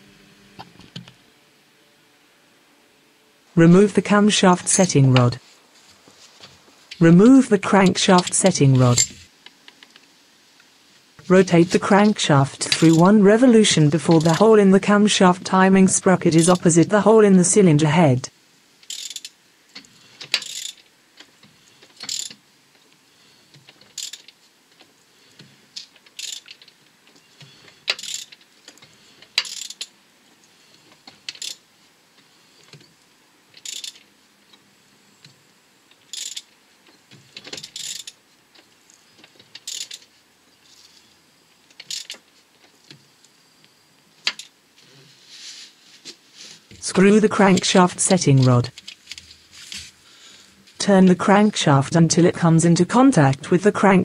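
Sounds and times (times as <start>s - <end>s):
ratchet wrench clicking: 18.8s - 19.3s, 20.2s - 20.8s, 22.0s - 22.4s, 23.9s - 24.3s, 26.1s - 26.6s, 27.9s - 28.4s, 29.4s - 29.9s, 31.3s - 31.6s, 33.6s - 34.0s, 36.1s - 36.5s, 37.4s - 38.2s, 39.6s - 40.0s, 41.8s - 42.2s.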